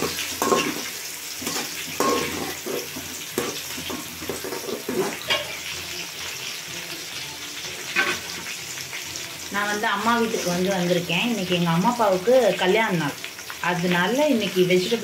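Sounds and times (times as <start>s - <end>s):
spoon scraping a metal pot: 0.0s - 5.6s
onions sizzling in oil: 0.0s - 15.0s.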